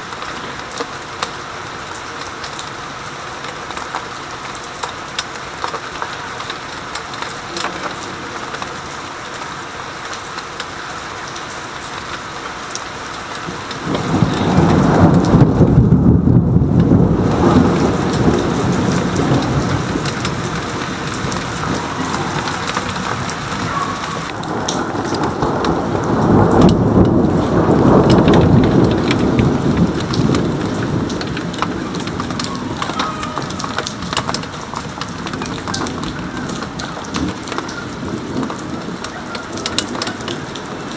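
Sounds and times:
rain hissing: 0:00.0 - 0:40.9
thunder rumbling: 0:13.3 - 0:40.9.

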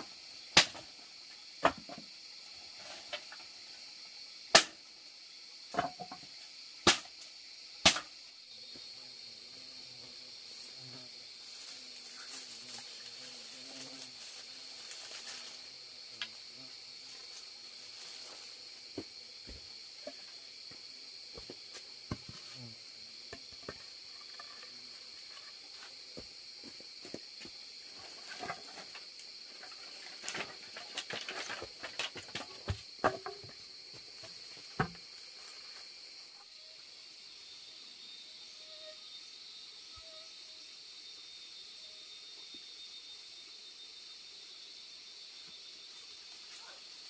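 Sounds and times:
insect chirring: 0:00.0 - 0:47.0
wooden knocks and clatters: 0:05.7 - 0:06.3, 0:28.2 - 0:33.6
wood clicks and rustles: 0:28.0 - 0:33.6.

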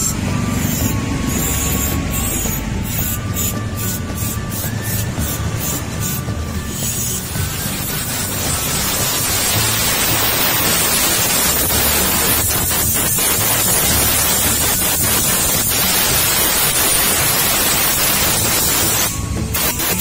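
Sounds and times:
compressed air hissing: 0:00.0 - 0:20.0.

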